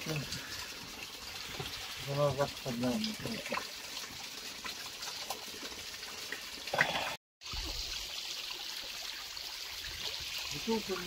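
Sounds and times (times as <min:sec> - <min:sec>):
stream trickling over rocks: 0:00.0 - 0:11.0.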